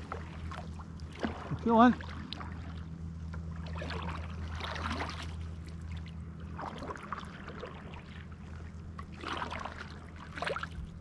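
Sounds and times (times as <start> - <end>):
paddle splashing in water: 0.0 - 2.9, 3.5 - 11.0
low hum: 0.0 - 11.0
water trickling along hull: 0.0 - 11.0.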